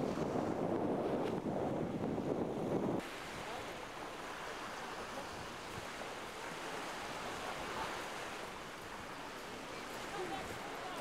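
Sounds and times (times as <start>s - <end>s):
wind on microphone: 0.0s - 3.2s
ocean surf: 0.0s - 11.0s.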